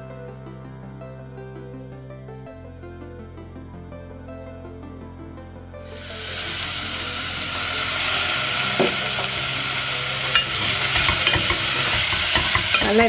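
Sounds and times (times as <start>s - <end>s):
vegetables sizzling in oil: 5.8s - 13.0s.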